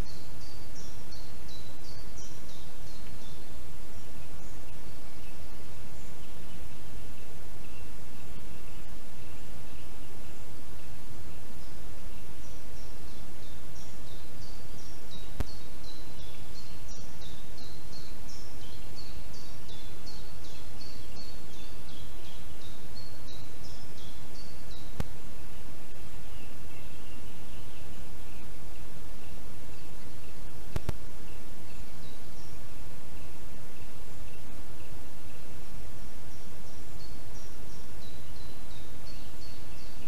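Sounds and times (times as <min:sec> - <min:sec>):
songbird singing: 0:00.0 - 0:40.0
steady hiss: 0:00.0 - 0:40.0
faint clicks: 0:24.9 - 0:25.2, 0:30.7 - 0:31.1.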